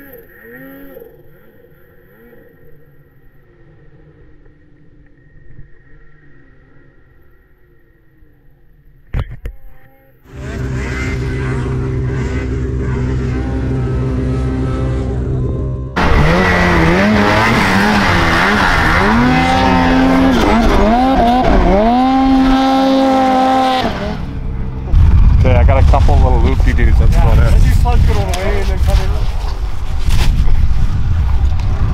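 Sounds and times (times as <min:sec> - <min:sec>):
snowmobile engine revving: 0:10.3 - 0:24.7.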